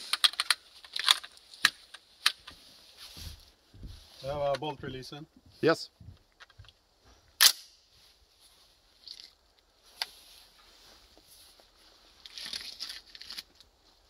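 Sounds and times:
rifle handling sounds: 0.0 - 2.6, 12.2 - 13.8.

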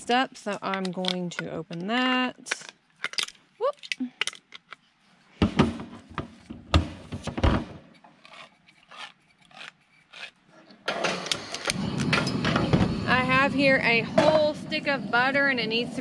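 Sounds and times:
loud continuous noise: 11.0 - 16.0.

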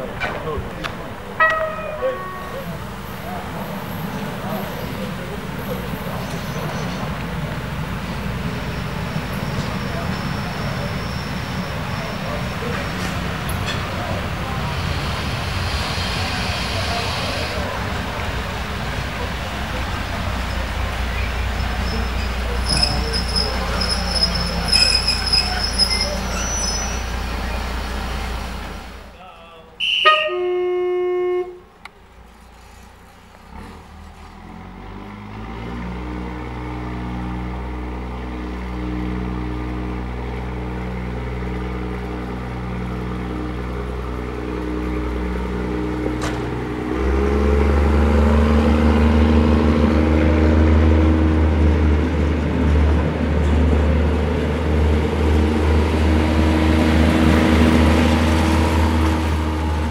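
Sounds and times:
diesel engine rumble: 0.0 - 29.8, 30.4 - 59.9
train horn blast: 1.4 - 3.3, 29.8 - 31.7.

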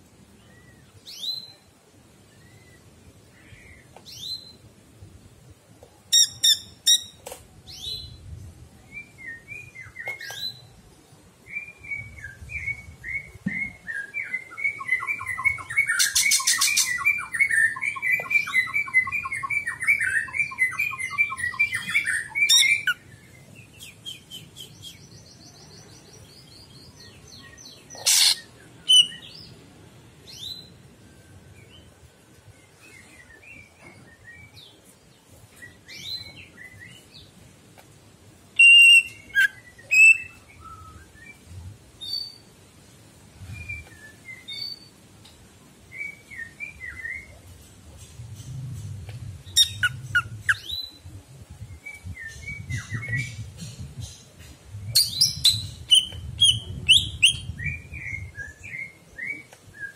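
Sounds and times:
bird chirping and whistling: 13.5 - 23.0, 28.1 - 29.2, 38.6 - 41.1, 49.6 - 50.9, 55.0 - 59.4.

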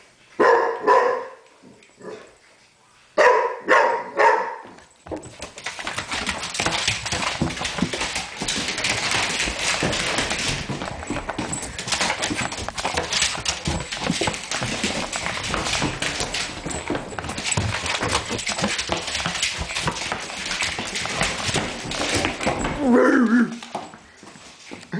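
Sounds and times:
dog claws clattering on floor: 4.9 - 24.5.

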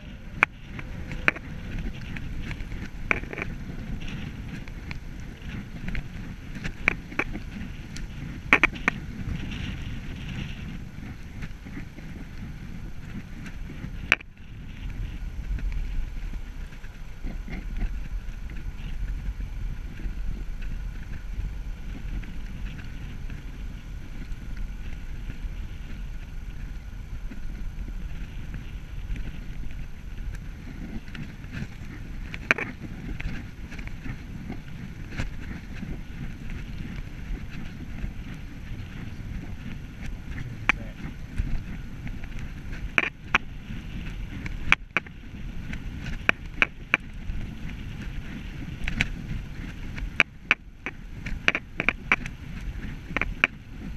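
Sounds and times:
bicycle tyres rumbling on tarmac: 0.0 - 53.9
wind on microphone: 0.0 - 53.9.

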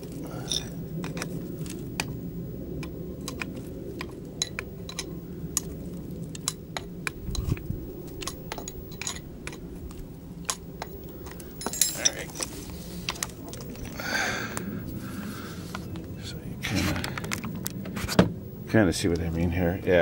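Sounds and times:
low steady rumble: 0.0 - 20.0
wrench metal clicks and clinks: 8.2 - 9.6, 11.3 - 12.5.

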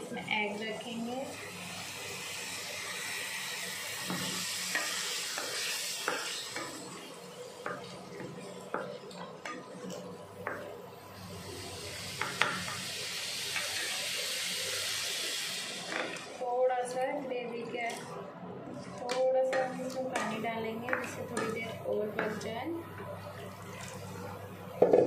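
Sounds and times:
masala sizzling in a frying pan: 0.2 - 16.4.

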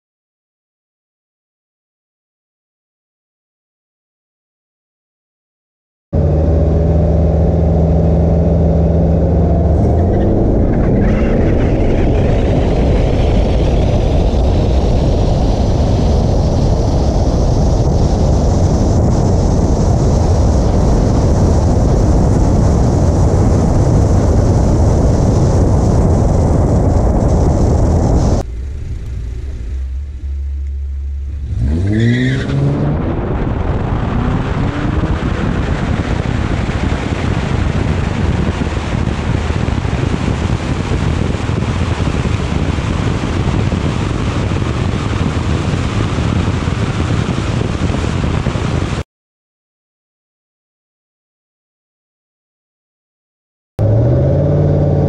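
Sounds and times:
car engine revving: 6.2 - 48.0, 53.8 - 55.0
race car engine and road noise: 6.2 - 49.0, 53.8 - 55.0
rising whine: 6.2 - 49.0, 53.8 - 55.0.

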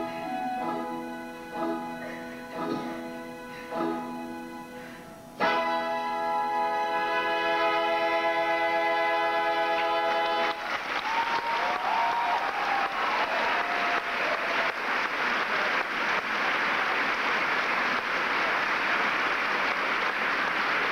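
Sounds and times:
audience applauding: 7.2 - 20.9
people whooping: 10.4 - 14.8.

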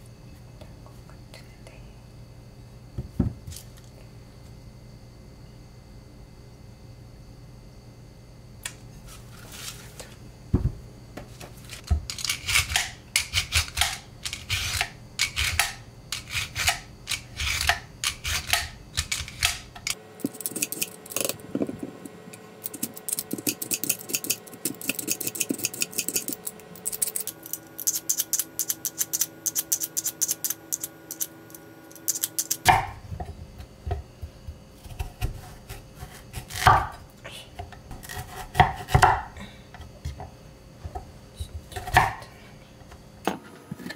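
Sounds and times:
vegetable peeler scraping: 11.6 - 22.0, 22.6 - 32.7, 34.8 - 36.9, 37.9 - 39.0.

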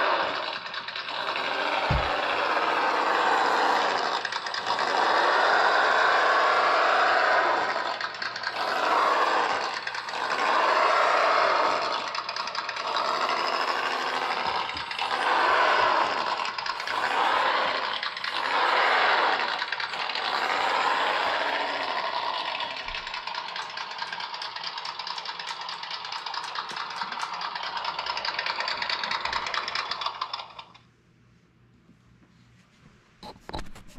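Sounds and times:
rc crawler motor revving: 0.0 - 30.8.

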